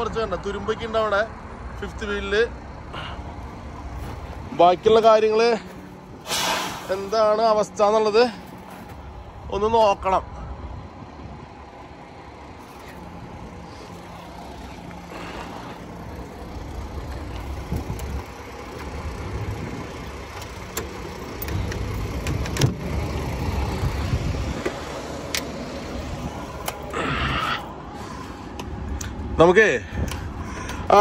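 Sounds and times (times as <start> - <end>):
low handling rumble: 0.0 - 31.0.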